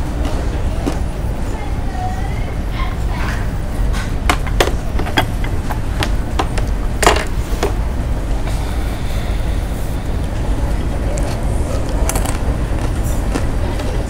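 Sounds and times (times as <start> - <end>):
low rumble of ship engines: 0.0 - 14.0
plates and cutlery clattering: 3.2 - 7.8.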